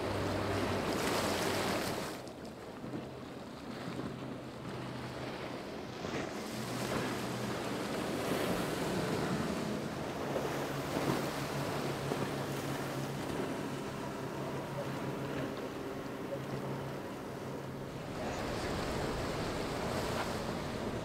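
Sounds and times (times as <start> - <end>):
outboard motors running: 0.0 - 21.0
rush of spray and wake: 0.0 - 21.0
wind on microphone: 17.8 - 21.0.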